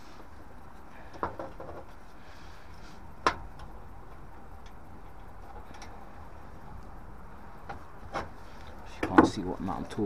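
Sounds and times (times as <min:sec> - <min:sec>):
faint low background hum: 0:00.0 - 0:10.0
small clicks inside boiler casing: 0:03.2 - 0:06.0.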